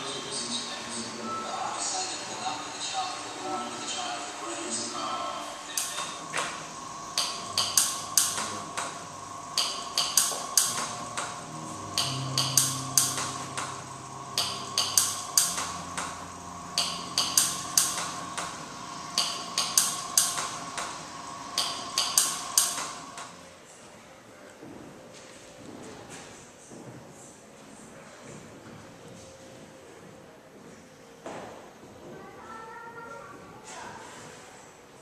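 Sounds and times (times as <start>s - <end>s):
low held tones: 0.0s - 24.1s
steady hum: 0.0s - 32.4s.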